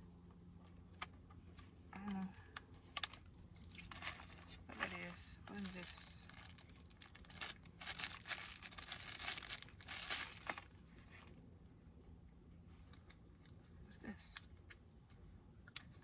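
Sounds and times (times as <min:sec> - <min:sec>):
plastic packaging crinkling: 0:03.0 - 0:11.2.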